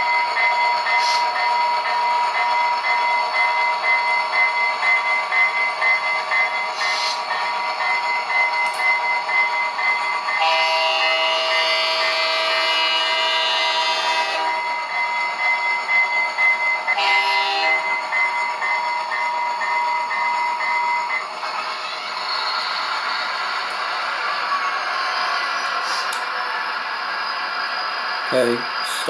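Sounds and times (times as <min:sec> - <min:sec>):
diesel engine running through speaker: 0:06.3 - 0:09.2, 0:28.2 - 0:29.0
multi-note horn blast: 0:10.4 - 0:14.5, 0:17.0 - 0:17.8.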